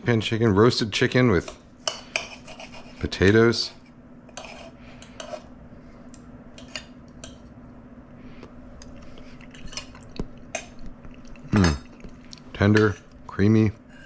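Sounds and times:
cutlery scraping a plate: 0:01.8 - 0:03.1, 0:04.3 - 0:05.5, 0:06.6 - 0:07.4.

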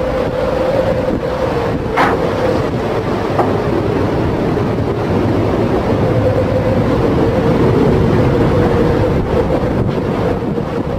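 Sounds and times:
heavy sea noise: 0:00.0 - 0:10.9
mid-pitched drone: 0:00.0 - 0:10.9
wind: 0:00.0 - 0:10.9.

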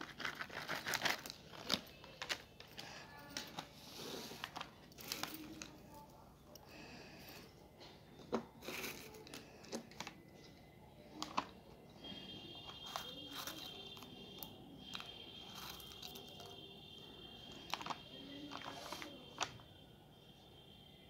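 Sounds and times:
fingers picking through crisp snacks: 0:00.0 - 0:03.7, 0:04.3 - 0:06.7, 0:08.6 - 0:10.5, 0:12.6 - 0:16.7, 0:17.4 - 0:19.7.

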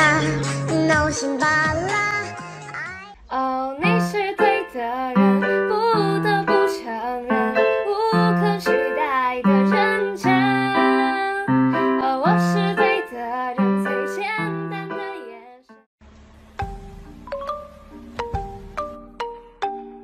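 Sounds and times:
keyboard tune over bass line: 0:16.5 - 0:20.0.

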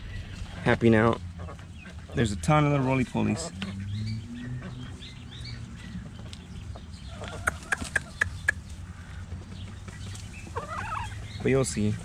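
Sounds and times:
hen clucking: 0:00.0 - 0:12.0.

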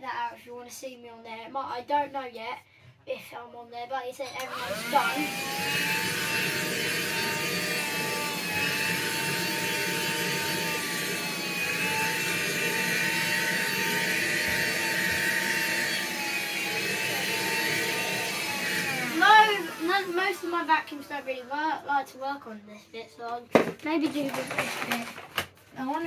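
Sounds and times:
handheld vacuum whining: 0:04.4 - 0:21.6.

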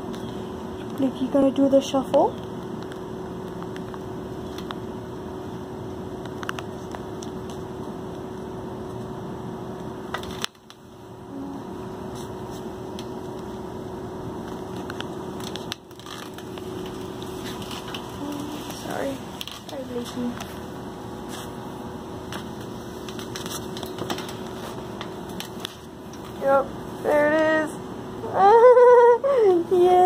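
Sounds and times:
background hum and hiss: 0:00.0 - 0:30.0.

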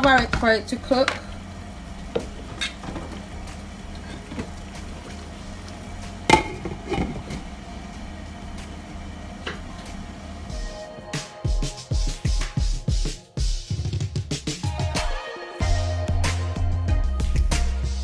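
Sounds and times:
steady low hum: 0:00.0 - 0:10.8
stew simmering in a pan: 0:00.1 - 0:10.4
glass lid clanking onto pan: 0:06.3 - 0:07.5.

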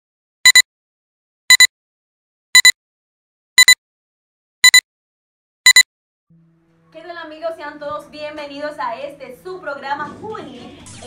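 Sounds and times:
electronic double beep: 0:02.6 - 0:02.8, 0:04.6 - 0:04.8.

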